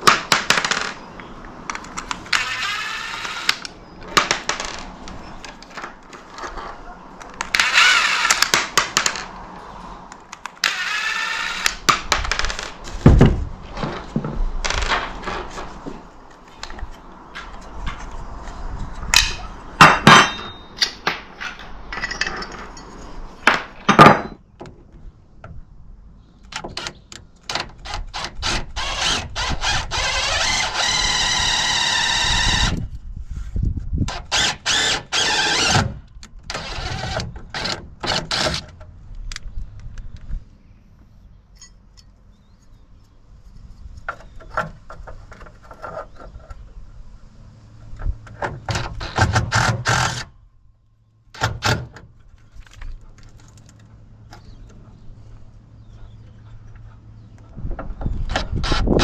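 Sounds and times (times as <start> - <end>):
hand tools clinking and clattering: 19.2 - 23.2.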